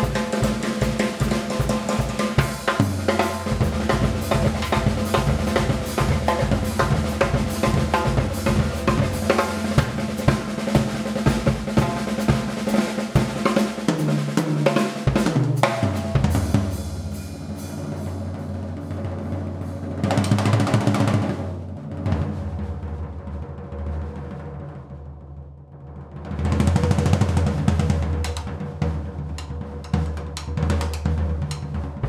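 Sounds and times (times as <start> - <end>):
fast drum solo: 0.0 - 32.0
cymbal swell: 16.4 - 20.0.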